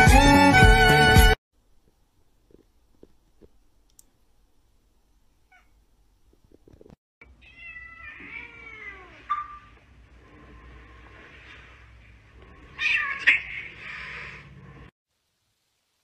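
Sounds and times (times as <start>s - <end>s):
cat meowing: 5.5s - 5.8s, 7.3s - 9.7s, 12.8s - 14.2s.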